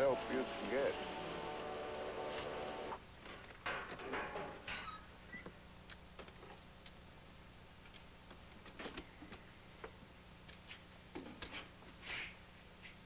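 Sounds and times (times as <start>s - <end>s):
steady low hum: 0.0s - 3.2s.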